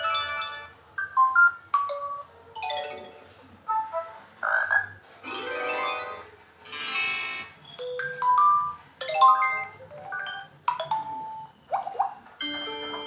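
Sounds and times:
phone notification chimes: 0:12.4 - 0:13.0.

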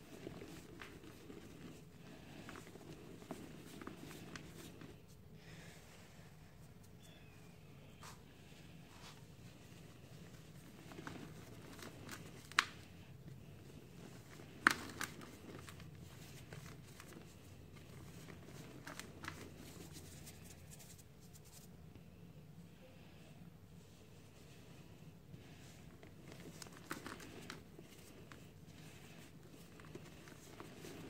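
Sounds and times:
cement powder rustling: 0:00.0 - 0:06.9, 0:24.0 - 0:31.0.

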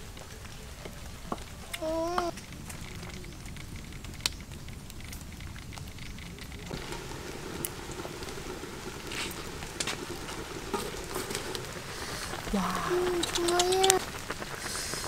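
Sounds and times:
pot simmering: 0:00.0 - 0:15.0
wood fire crackling and popping: 0:00.0 - 0:15.0.

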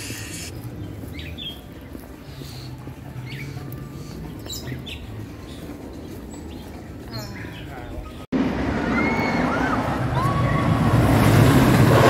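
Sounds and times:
birds chirping: 0:00.0 - 0:08.3.

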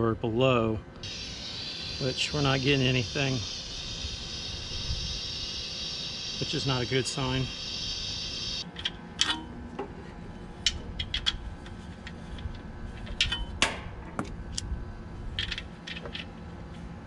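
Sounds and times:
gas hissing from hose: 0:01.0 - 0:08.6.

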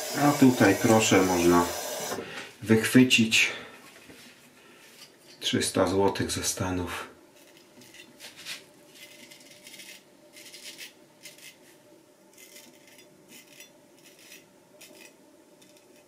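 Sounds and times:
razor scraping stubble: 0:07.4 - 0:11.7, 0:12.3 - 0:16.0.

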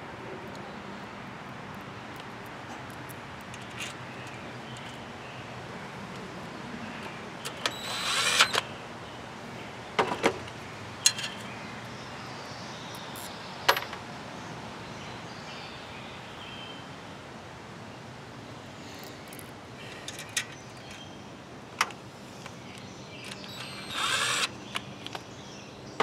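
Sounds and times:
short mechanical buzz: 0:07.7 - 0:08.6, 0:23.5 - 0:24.5.

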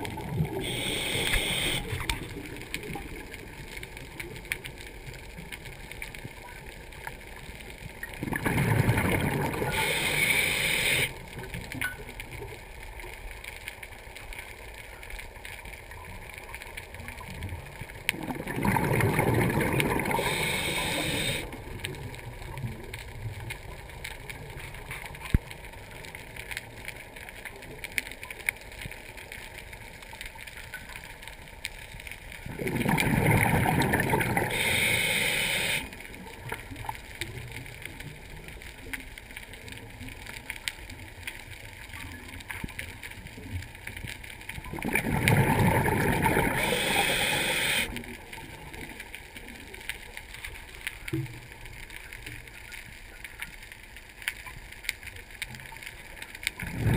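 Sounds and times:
loud underwater bubbling rushes: 0:08.2 - 0:09.7, 0:18.2 - 0:20.1, 0:32.5 - 0:34.5, 0:44.8 - 0:46.6.

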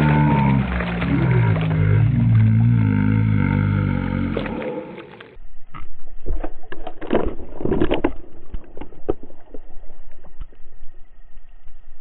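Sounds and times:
fish thrashing and splashing: 0:00.0 - 0:05.4.

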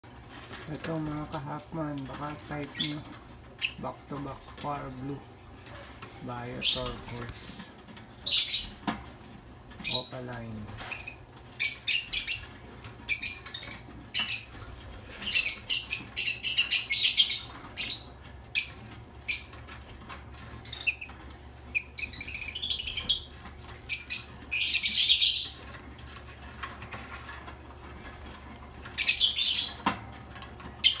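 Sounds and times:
lovebirds chirping: 0:00.5 - 0:05.3, 0:06.2 - 0:07.6, 0:08.2 - 0:08.8, 0:09.8 - 0:19.8, 0:20.5 - 0:25.8, 0:28.0 - 0:30.0.

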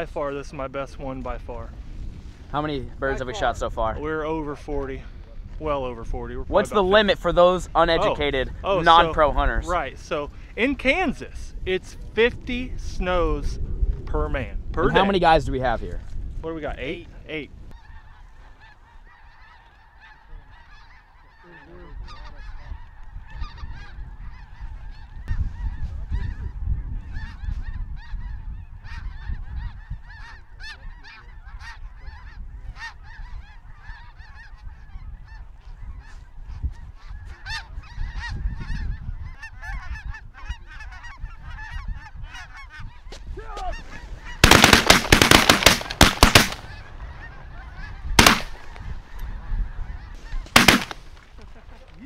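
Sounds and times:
geese honking: 0:17.7 - 0:52.0
shotgun blasts: 0:44.4 - 0:46.8, 0:48.2 - 0:48.8, 0:50.5 - 0:51.2.

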